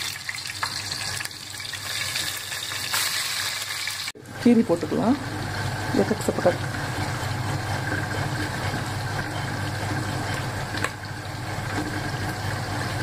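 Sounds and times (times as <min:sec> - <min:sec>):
vegetables sizzling in hot oil: 0:00.0 - 0:04.1.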